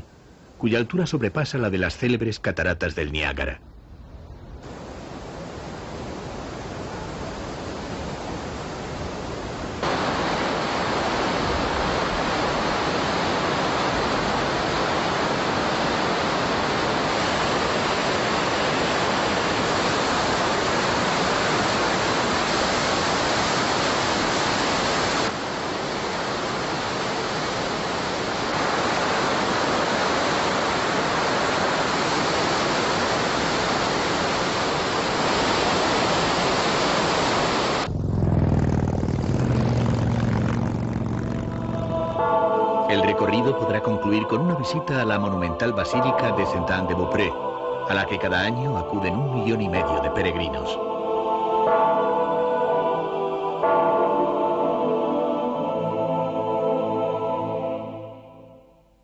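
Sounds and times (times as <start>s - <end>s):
large waterfall rushing: 4.6s - 37.9s.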